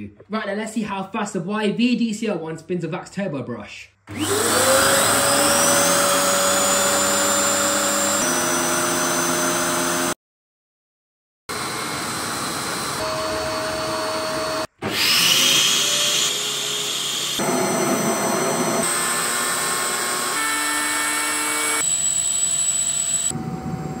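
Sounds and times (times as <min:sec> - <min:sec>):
vacuum cleaner motor whine: 0:04.1 - 0:10.1, 0:11.5 - 0:24.0.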